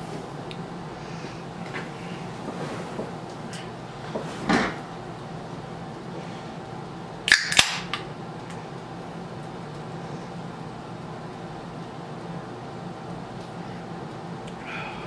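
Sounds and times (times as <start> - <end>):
steady low hum: 0.0 - 15.0
drink can pull tab snapping: 7.3 - 8.0.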